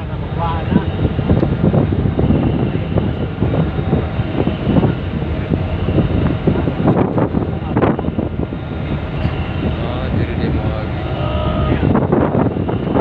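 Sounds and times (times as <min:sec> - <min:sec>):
ship engines rumbling: 0:00.0 - 0:13.0
wind gusts on microphone: 0:00.0 - 0:13.0.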